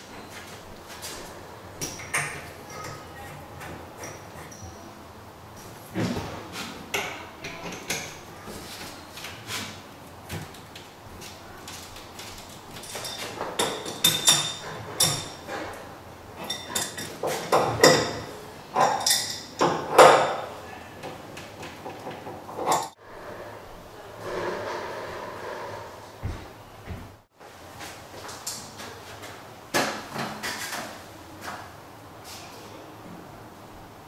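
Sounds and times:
wrench clinking on brass fittings: 16.4 - 19.7.

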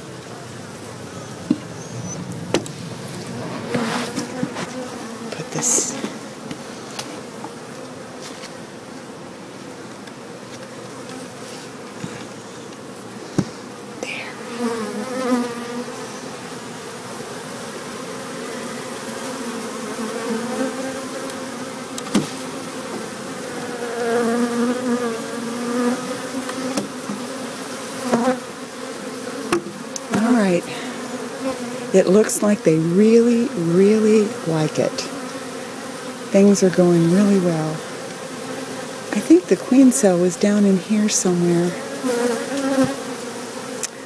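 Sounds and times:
bees buzzing: 0.0 - 44.0.

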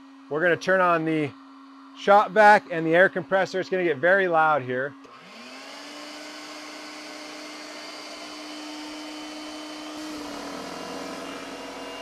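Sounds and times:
heat gun blower: 0.0 - 12.0
motor humming low: 0.0 - 12.0
shop vac motor whine: 0.0 - 12.0.

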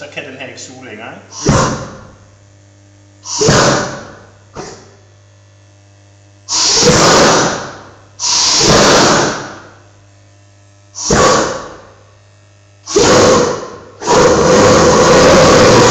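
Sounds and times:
gas burner flame rushing: 1.3 - 2.2, 3.2 - 5.0, 6.5 - 9.8, 11.0 - 12.0, 12.9 - 15.9.

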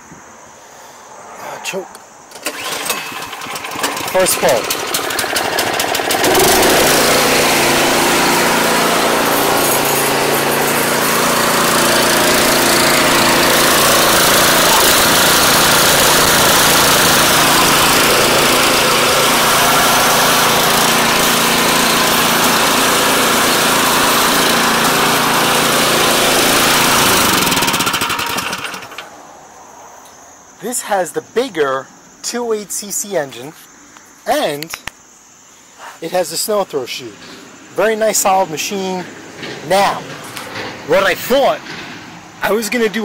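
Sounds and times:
engine pull-start: 2.3 - 21.8, 26.4 - 29.1
small engine running: 2.3 - 29.1.

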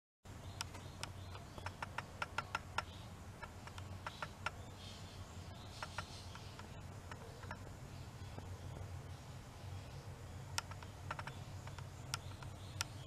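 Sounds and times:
low steady hum: 0.3 - 13.0
light clicks and ticks: 0.6 - 4.6, 5.8 - 7.7, 10.5 - 13.0.

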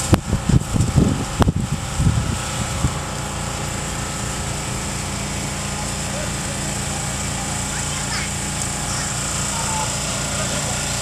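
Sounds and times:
wind buffeting microphone: 0.0 - 3.1
engine drone: 0.0 - 11.0.

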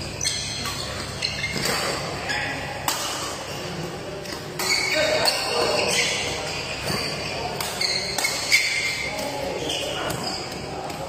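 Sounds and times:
rackets striking shuttlecock: 2.8 - 3.4.

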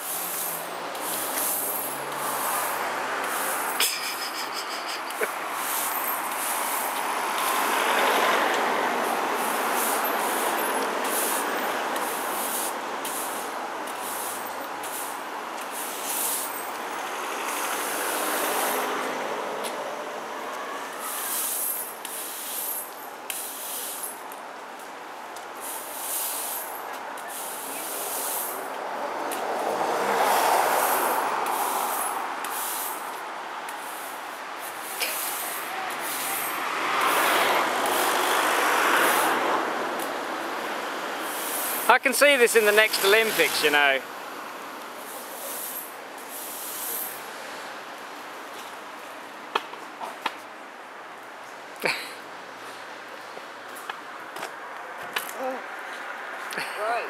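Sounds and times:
push broom scraping paving: 0.0 - 16.9, 20.6 - 24.3, 25.5 - 40.1, 41.2 - 44.0, 45.0 - 47.2
passing vehicle: 0.0 - 57.0
street traffic rushing: 0.0 - 57.0.

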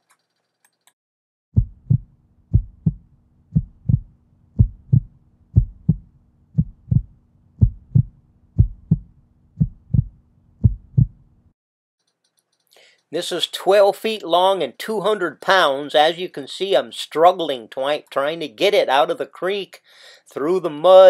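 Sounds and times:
heartbeat thumps: 1.6 - 11.2.

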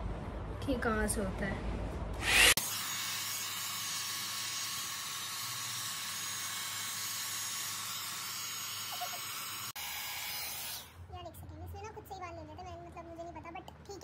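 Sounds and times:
hot-air styler fan hissing: 2.2 - 11.0.

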